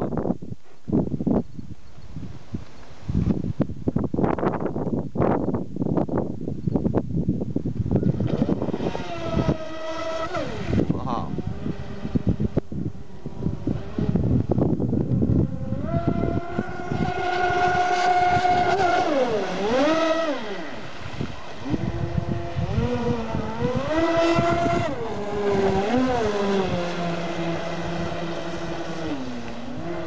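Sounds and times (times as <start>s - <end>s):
rc boat motors whining: 7.9s - 30.0s.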